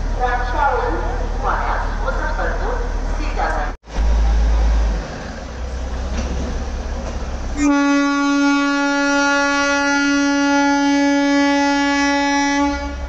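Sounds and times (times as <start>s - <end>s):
rail vehicles rumbling past: 0.0s - 13.0s
train horn long note: 7.6s - 13.0s.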